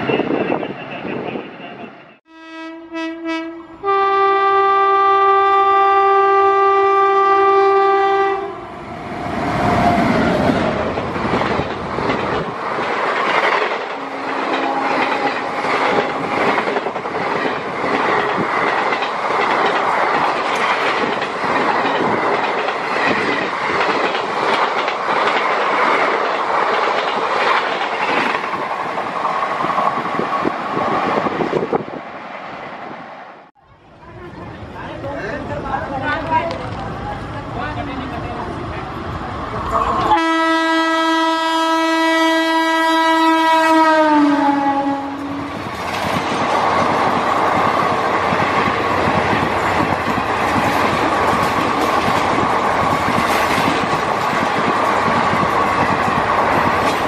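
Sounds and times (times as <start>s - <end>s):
train horn: 2.3s - 8.7s, 14.0s - 15.7s, 40.1s - 45.6s
train wheels clattering: 9.6s - 30.5s, 45.5s - 57.0s.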